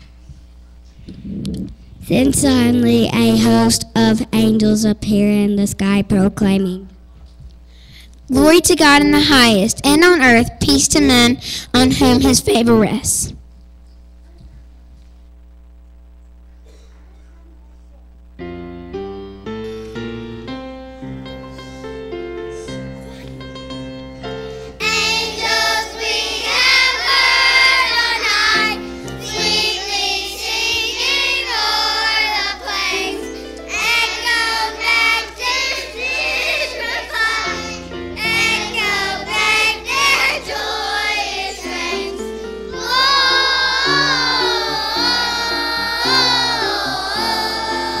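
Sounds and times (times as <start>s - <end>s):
children's choir singing: 24.8s - 48.0s.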